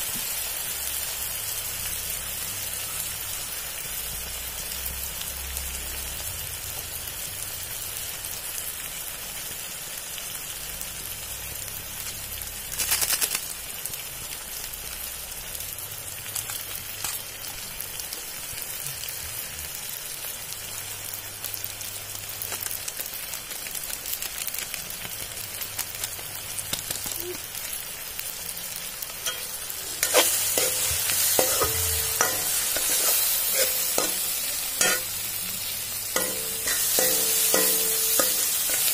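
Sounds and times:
onions sizzling in hot oil: 0:00.0 - 0:38.9
steel spoon scraping a pan: 0:29.2 - 0:38.9.

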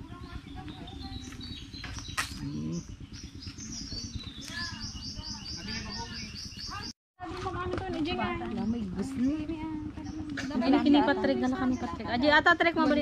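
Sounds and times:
small birds chirping: 0:00.0 - 0:07.0, 0:08.4 - 0:12.5.

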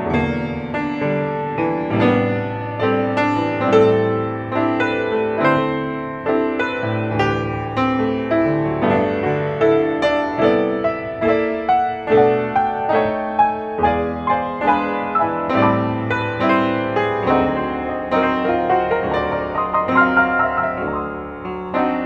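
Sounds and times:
solo jazz piano: 0:00.0 - 0:22.0.

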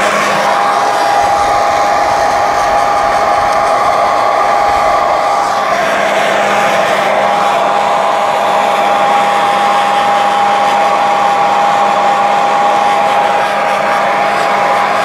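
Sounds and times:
hair dryer running: 0:00.0 - 0:15.0.

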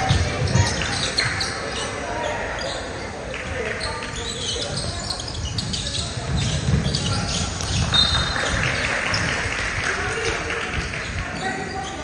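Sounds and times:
players' voices: 0:00.0 - 0:12.0
shoes squeaking on hardwood: 0:03.8 - 0:08.3.

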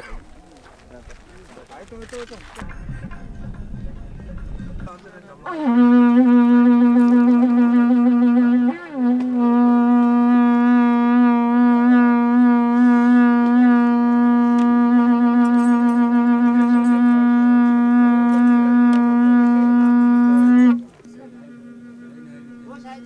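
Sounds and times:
horn sounding long note: 0:05.4 - 0:23.0.

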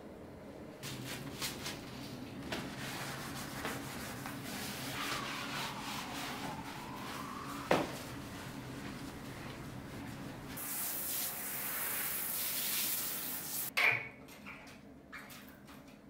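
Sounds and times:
shower spraying into bathtub: 0:10.6 - 0:13.7.

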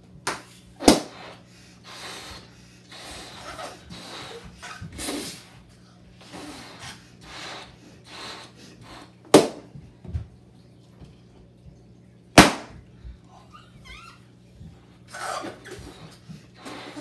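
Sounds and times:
balloon popping bang: 0:00.8 - 0:01.2, 0:09.3 - 0:09.6, 0:12.4 - 0:12.8
breaths blowing up balloons: 0:00.8 - 0:09.6, 0:14.7 - 0:17.0.

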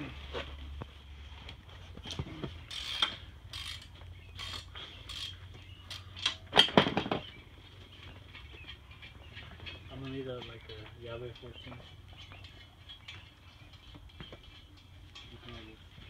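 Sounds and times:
metal tools clinking and scraping: 0:02.0 - 0:07.2, 0:09.6 - 0:16.0.

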